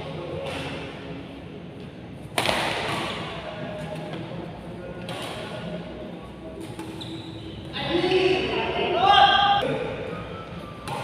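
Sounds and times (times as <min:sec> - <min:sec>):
racket striking shuttlecock: 0:02.3 - 0:03.2.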